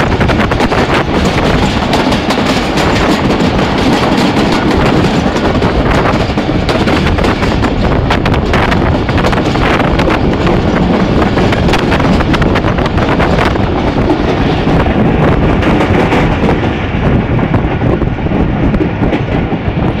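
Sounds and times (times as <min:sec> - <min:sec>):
train running noise: 0:00.0 - 0:20.0
wind rushing on microphone: 0:00.0 - 0:20.0.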